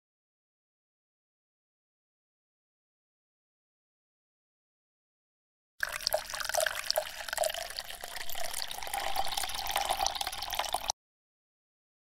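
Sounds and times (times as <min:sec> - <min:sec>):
water trickling and dripping: 0:05.8 - 0:10.9.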